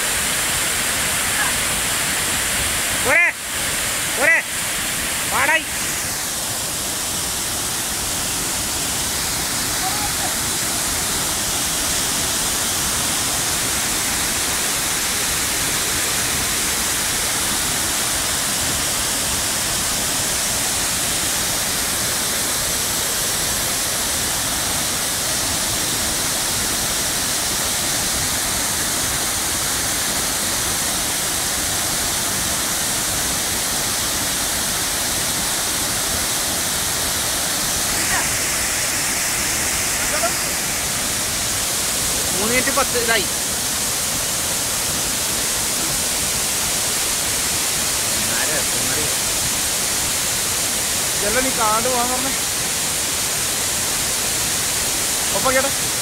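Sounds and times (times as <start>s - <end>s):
waterfall thundering: 0.0s - 56.0s.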